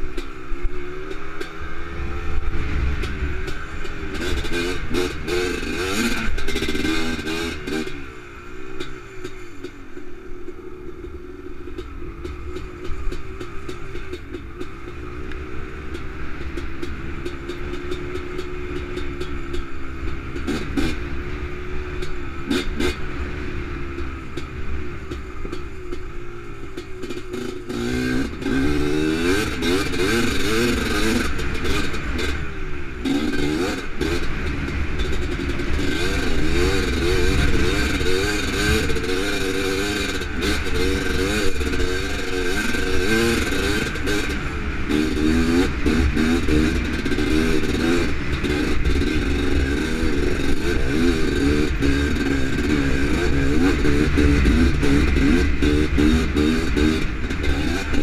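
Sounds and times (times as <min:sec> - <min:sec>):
two-stroke engine revving: 0:00.0 - 0:58.0.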